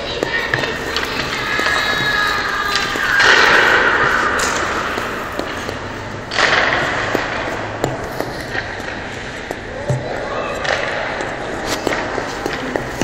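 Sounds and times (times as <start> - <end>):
steady rink hiss: 0.0 - 9.8, 10.6 - 13.0
bangs echoing in arena: 0.1 - 5.6.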